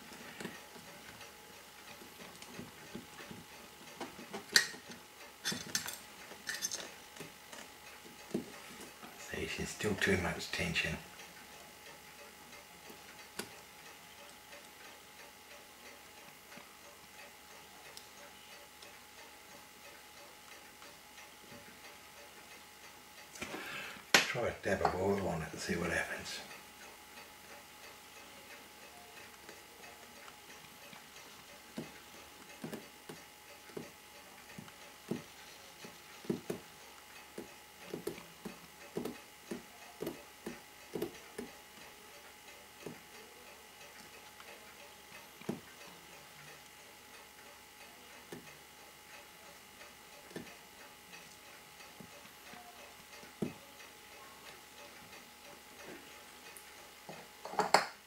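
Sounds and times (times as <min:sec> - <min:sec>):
small clicks and taps: 0:31.7 - 0:41.9.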